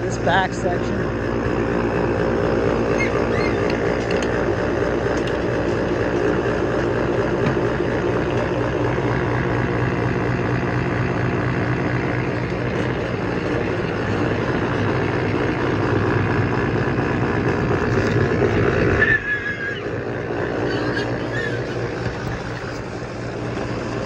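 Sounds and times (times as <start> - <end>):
tractor engine running: 0.0 - 24.0
high squeaks: 2.9 - 4.1, 18.8 - 22.8.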